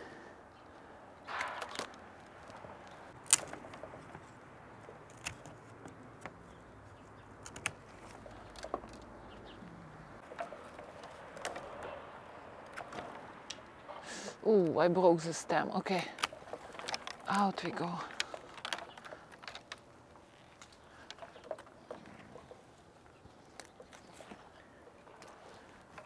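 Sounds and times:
secateurs snipping: 1.3 - 3.8, 4.8 - 6.4
rustle of canes: 1.3 - 26.0.

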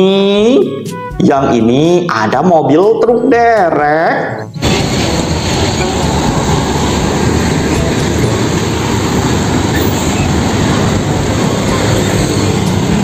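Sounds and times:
truck engine rumble: 4.4 - 13.0.

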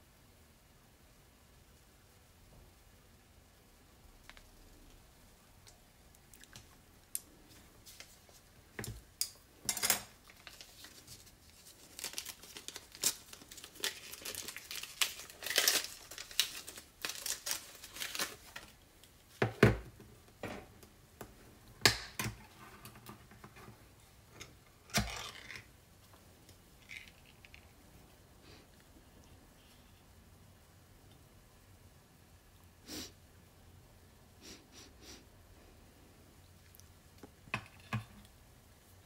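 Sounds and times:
paper wrapper crinkling and tearing: 10.2 - 19.1, 24.8 - 25.7.

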